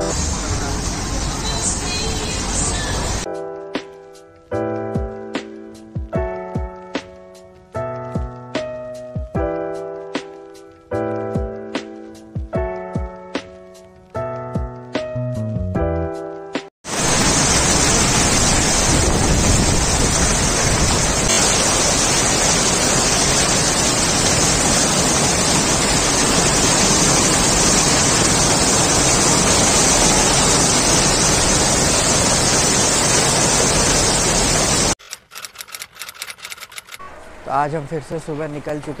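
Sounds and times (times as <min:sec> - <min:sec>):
heavy rain pouring: 0:00.0 - 0:03.3, 0:16.8 - 0:35.0.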